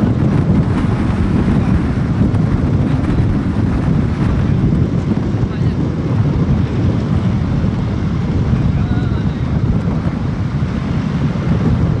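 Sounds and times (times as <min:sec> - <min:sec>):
vehicle running noise: 0:00.0 - 0:12.0
wind buffeting microphone: 0:00.0 - 0:12.0.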